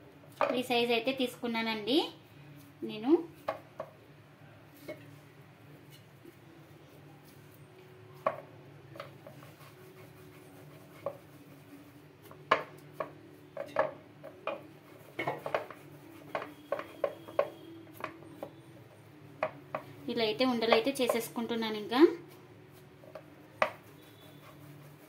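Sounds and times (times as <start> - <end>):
dough patted on wooden board: 23.2 - 24.3.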